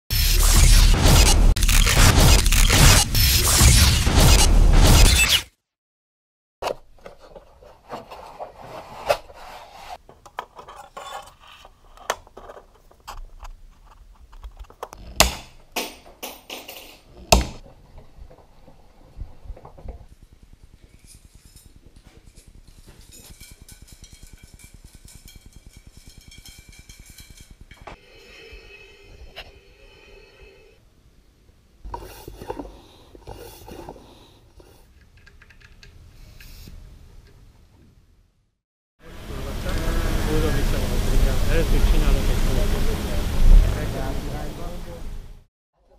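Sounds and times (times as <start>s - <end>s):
sharp metallic clicks: 0.1s - 5.4s
metal spokes clinking and rattling: 20.8s - 28.0s.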